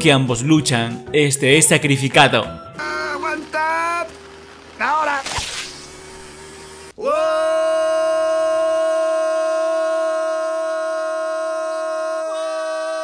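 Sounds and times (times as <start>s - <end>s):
loud steady horn tone: 2.8s - 5.2s.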